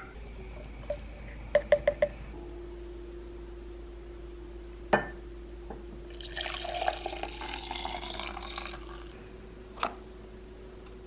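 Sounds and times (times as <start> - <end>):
liquid pouring into mug: 6.1 - 9.1.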